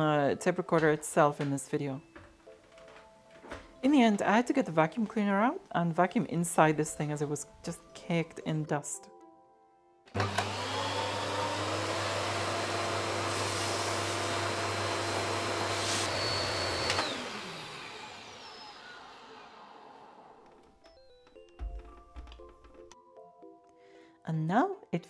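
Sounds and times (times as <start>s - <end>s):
vacuum cleaner motor whining: 10.1s - 20.8s.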